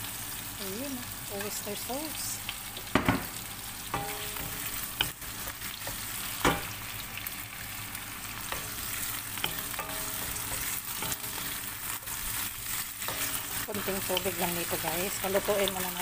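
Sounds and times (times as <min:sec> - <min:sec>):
chicken sizzling in oil: 0:00.0 - 0:16.0
wooden spoon knocking on pan: 0:02.9 - 0:03.4, 0:06.4 - 0:06.7.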